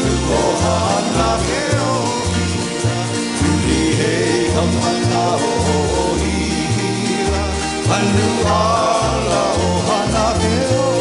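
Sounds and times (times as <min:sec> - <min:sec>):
acoustic guitars strumming: 0:00.0 - 0:11.0
upright bass plucking: 0:00.0 - 0:11.0.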